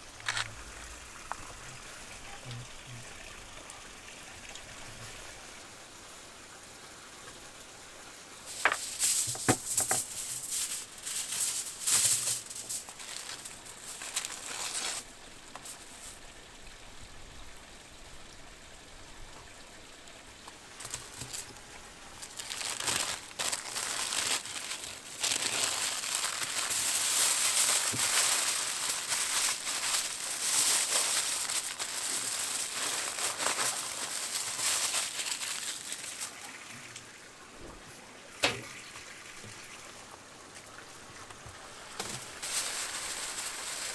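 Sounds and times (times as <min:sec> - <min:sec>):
foil and paper crinkling: 0:08.5 - 0:16.2, 0:20.8 - 0:36.5, 0:41.9 - 0:43.9.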